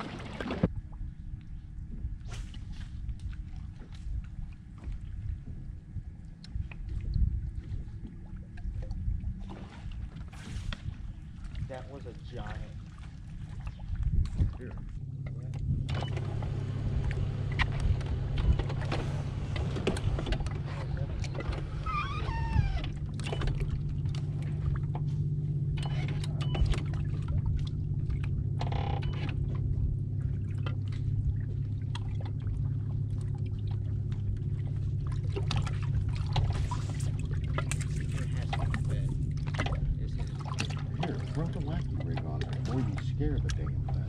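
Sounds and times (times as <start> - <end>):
clicks and knocks on boat: 13.5 - 44.0
electric trolling motor humming: 15.0 - 44.0.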